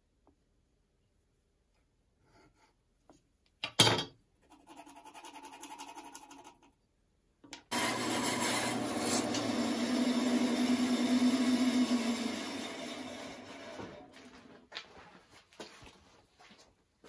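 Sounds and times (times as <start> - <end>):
pencil scratching on wood: 4.4 - 6.7.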